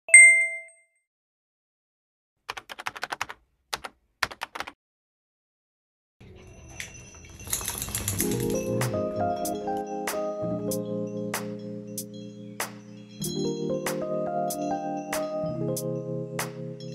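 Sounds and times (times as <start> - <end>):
chime ringing: 0.1 - 0.7
light music with mallet tones: 0.1 - 0.7, 6.2 - 16.9.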